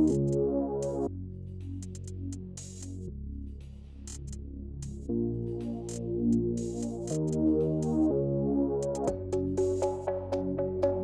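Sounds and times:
synthesizer chords: 0.0 - 1.1, 5.0 - 11.0.

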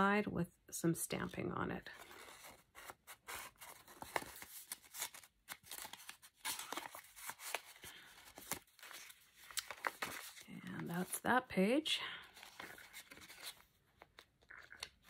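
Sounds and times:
paper rustling and scraping: 1.9 - 10.5, 12.4 - 14.3.

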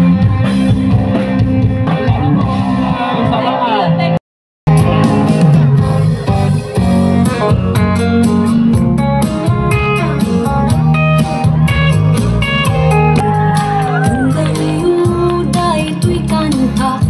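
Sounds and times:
guitar-led music with beat: 0.0 - 4.1, 4.7 - 17.0.

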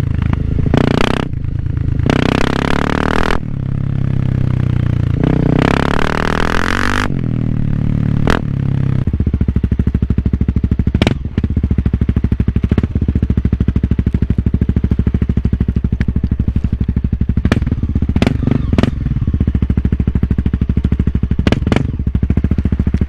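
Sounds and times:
motorcycle engine putter: 12.5 - 19.6.

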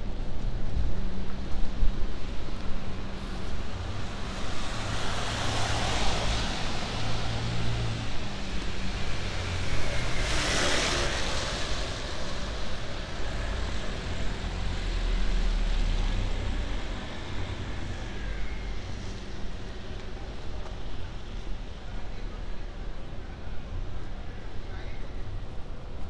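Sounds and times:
tyres hissing on wet pavement: 3.1 - 19.1.

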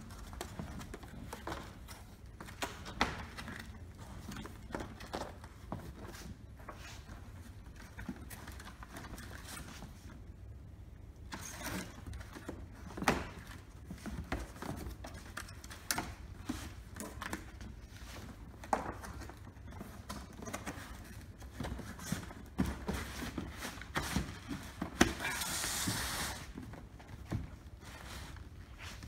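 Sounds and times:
cardboard box being folded: 21.7 - 27.1.

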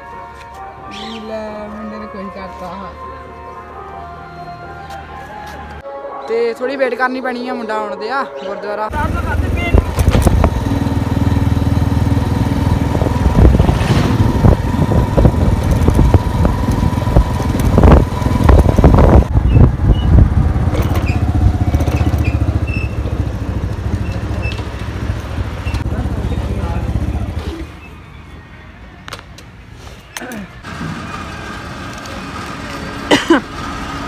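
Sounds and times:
motorcycle engine running: 8.9 - 27.6
wind buffeting microphone: 12.1 - 22.8.

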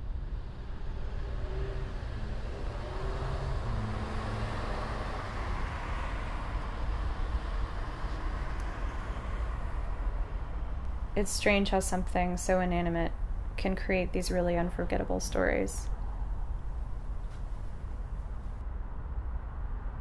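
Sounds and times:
faint engine tones: 0.0 - 18.6
distant road traffic rumble: 0.0 - 19.6.

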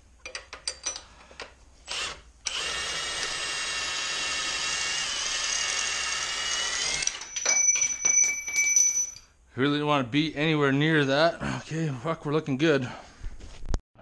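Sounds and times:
impact wrench running: 1.9 - 9.2.

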